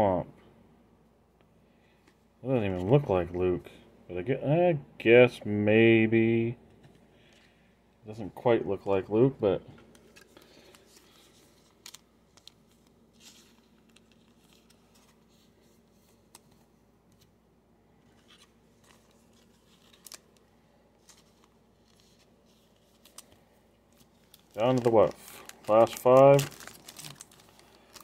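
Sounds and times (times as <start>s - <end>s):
trading cards rustling: 9.7s - 17.3s, 18.0s - 28.0s.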